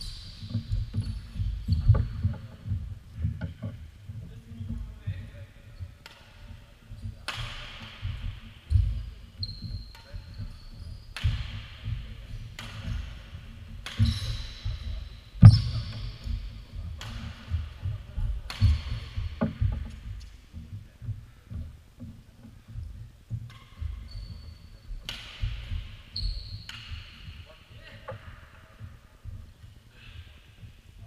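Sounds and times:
shoe squeaks: 0.0s - 2.6s, 8.6s - 11.2s, 14.0s - 16.5s, 23.6s - 25.1s, 25.9s - 27.4s
racket hitting shuttlecock: 6.0s - 6.4s, 7.2s - 9.0s, 11.2s - 14.8s, 17.0s - 17.7s, 18.4s - 20.0s, 23.4s - 24.0s, 25.0s - 25.8s, 26.7s - 27.3s.

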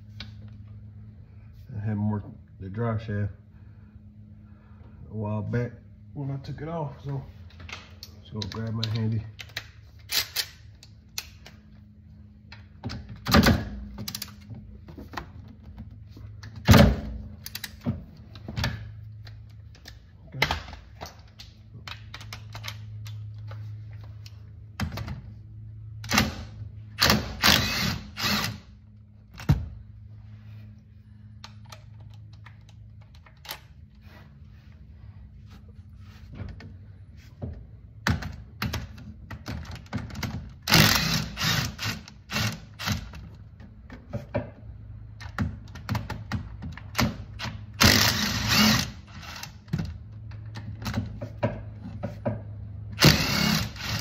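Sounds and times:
low steady hum: 0.0s - 54.0s
cordless power wrench running: 27.0s - 28.7s, 40.6s - 43.1s, 47.4s - 49.7s, 53.0s - 54.0s.

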